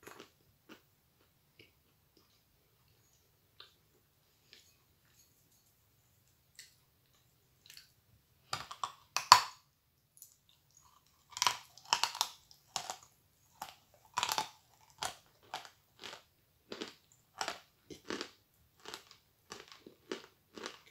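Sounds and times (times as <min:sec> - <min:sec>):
crunchy chewing: 0:10.2 - 0:20.9.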